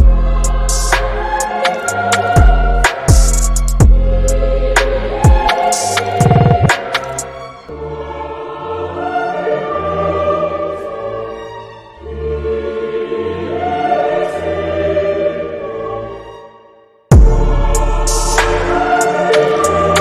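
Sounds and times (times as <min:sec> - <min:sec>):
background music with held chords: 0:00.0 - 0:16.4, 0:17.1 - 0:20.0
deep bass notes: 0:06.2 - 0:06.8.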